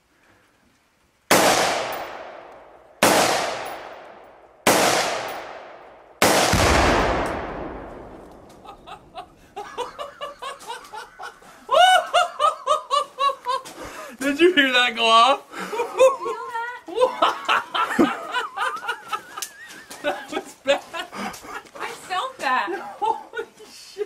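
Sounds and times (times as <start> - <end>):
loud explosive bangs echoing: 1.3 - 9.5
people laughing: 8.6 - 14.2, 15.5 - 21.9, 22.6 - 24.0.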